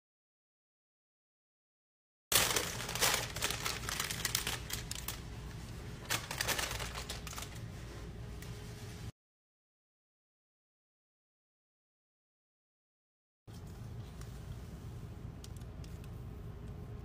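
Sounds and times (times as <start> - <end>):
parchment paper crackling: 2.3 - 9.1.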